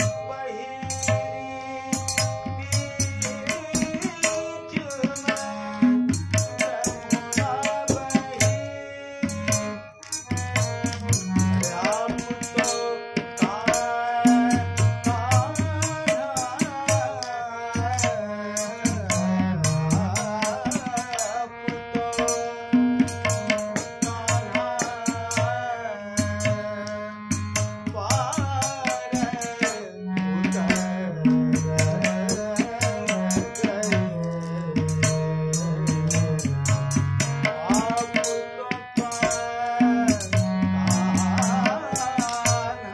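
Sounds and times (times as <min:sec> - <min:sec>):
tabla strokes: 0:00.0 - 0:25.6, 0:26.2 - 0:42.9
harmonium: 0:00.0 - 0:42.9
man singing: 0:00.0 - 0:42.9.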